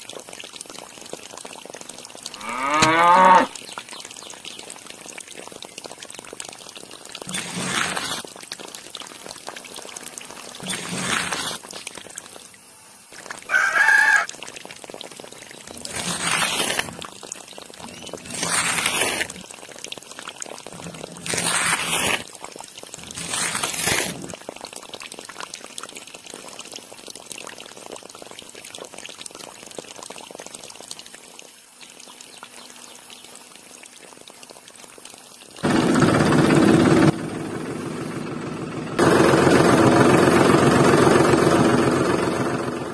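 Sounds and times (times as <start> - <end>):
water trickling: 0.0 - 21.5, 22.2 - 35.6
water pouring and splashing: 0.0 - 37.1
rooster crowing: 13.5 - 14.3.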